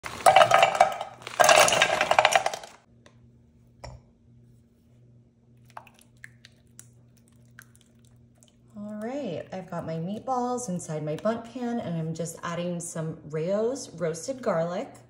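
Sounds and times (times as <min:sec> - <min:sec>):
frozen meatballs clattering into pan: 0:00.0 - 0:02.8.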